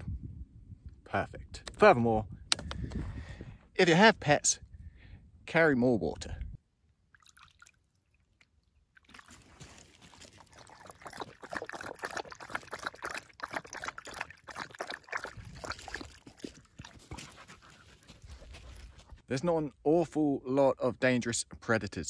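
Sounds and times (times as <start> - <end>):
dog lapping water: 7.2 - 19.1.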